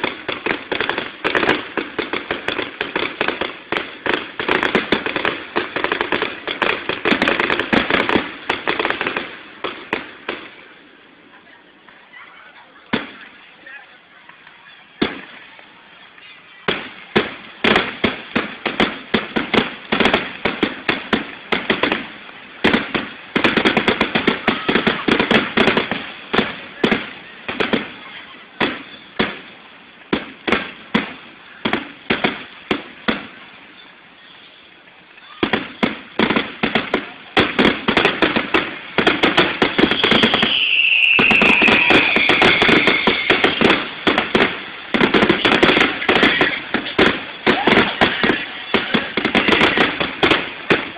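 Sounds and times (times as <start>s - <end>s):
fireworks bangs and pops: 0.0s - 50.9s
falling firework whistle: 37.9s - 50.9s.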